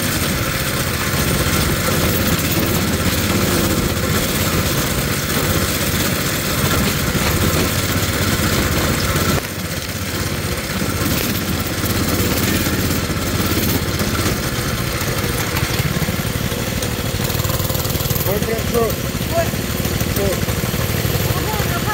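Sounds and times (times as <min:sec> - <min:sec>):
mini bike engine running: 0:00.0 - 0:21.9.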